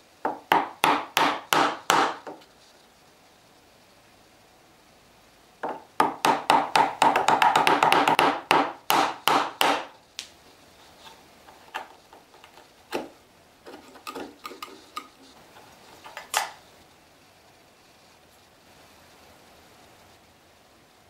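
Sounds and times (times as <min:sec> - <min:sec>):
mallet striking chisel in wood: 0:00.3 - 0:02.3, 0:05.6 - 0:09.9
chisel tapping and clicking in wood: 0:05.6 - 0:09.9.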